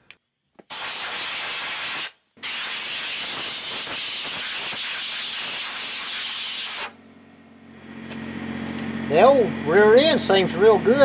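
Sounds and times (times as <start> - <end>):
compressed air blow gun hissing: 0.7 - 7.0.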